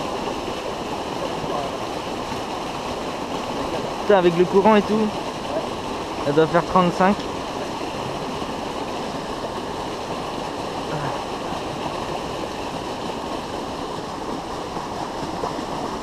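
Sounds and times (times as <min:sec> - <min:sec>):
river current rushing: 0:00.0 - 0:16.0.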